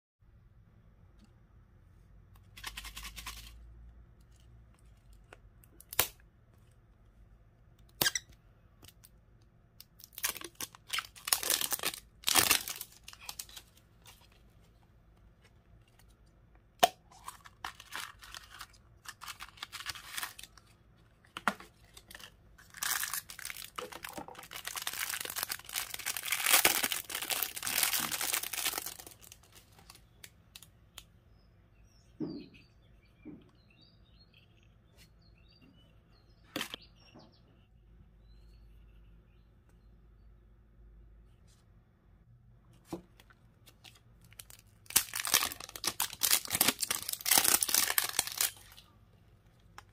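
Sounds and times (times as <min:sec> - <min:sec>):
wrapper crinkling and tearing: 0:10.0 - 0:14.3, 0:17.2 - 0:20.7, 0:21.8 - 0:30.0, 0:43.8 - 0:48.8.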